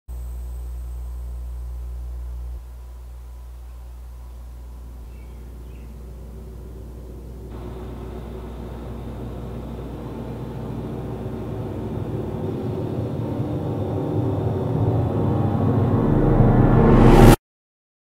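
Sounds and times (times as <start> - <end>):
dark cinematic drone: 3.9 - 17.4.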